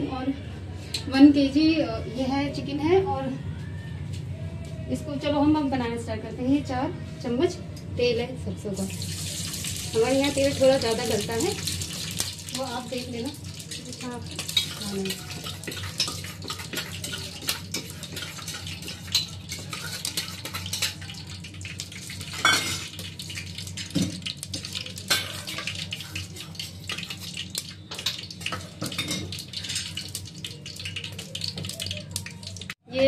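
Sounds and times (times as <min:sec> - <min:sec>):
oil crackling: 0:08.9 - 0:32.8
metal spoon clinking on pot: 0:14.3 - 0:21.4, 0:22.0 - 0:23.1, 0:23.8 - 0:31.9.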